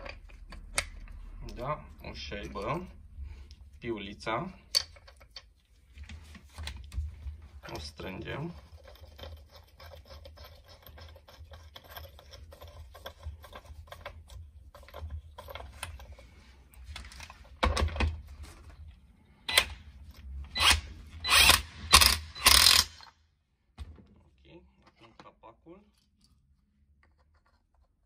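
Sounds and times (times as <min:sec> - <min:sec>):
cordless impact wrench bursts: 0:20.5 - 0:23.1.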